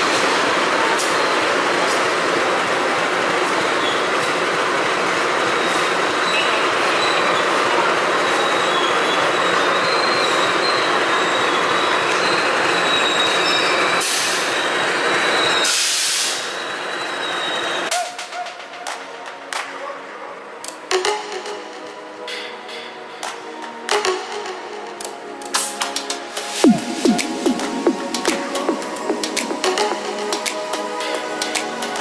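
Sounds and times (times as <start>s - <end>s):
train rumbling on rails: 0.0s - 19.5s
high wheel squeal: 5.5s - 18.5s.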